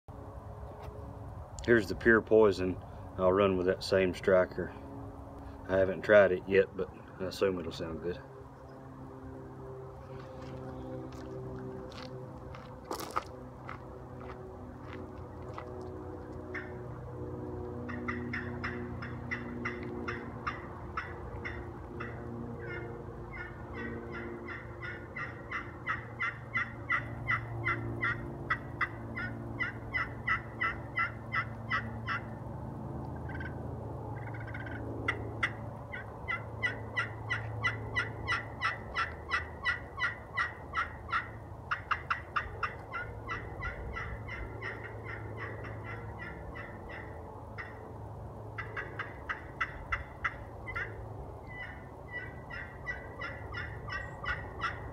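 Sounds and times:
turkey call yelps: 16.5 - 16.8, 17.9 - 32.3, 33.3 - 33.5, 34.2 - 47.8, 48.6 - 54.9.

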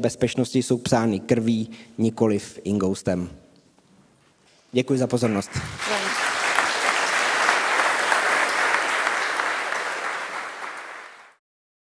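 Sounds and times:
audience applauding: 5.2 - 11.4.

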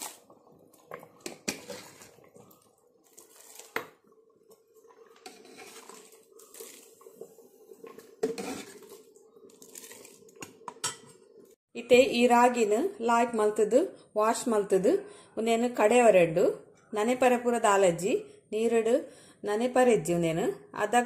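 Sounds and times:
ladle knocking and scraping pots: 0.8 - 2.5, 4.9 - 9.0, 9.8 - 11.2
water pouring over rice: 5.6 - 7.4, 8.6 - 10.4.

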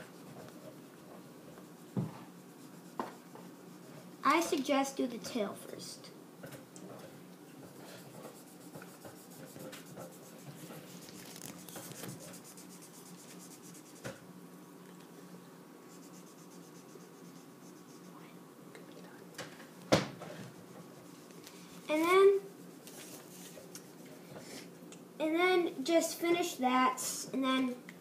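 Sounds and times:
pencil scribbling on paper: 0.1 - 4.0, 7.6 - 14.1, 15.9 - 18.2.

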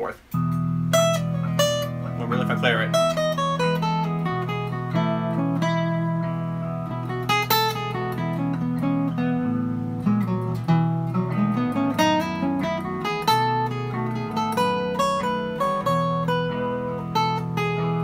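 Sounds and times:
acoustic guitar single-note melody: 0.2 - 18.0
looped guitar chord backing: 0.2 - 18.0.

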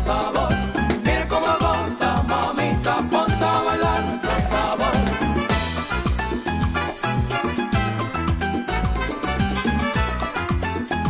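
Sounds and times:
salsa music: 0.0 - 11.0.

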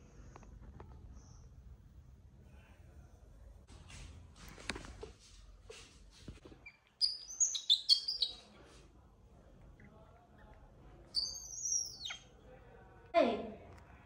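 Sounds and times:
baby monkey squeaking: 6.6 - 8.4, 11.2 - 12.3.

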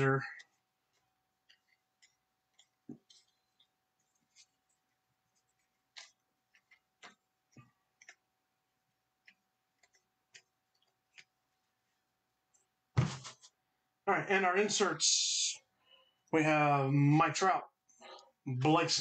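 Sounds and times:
paper cards clicking and snapping: 5.5 - 8.2.

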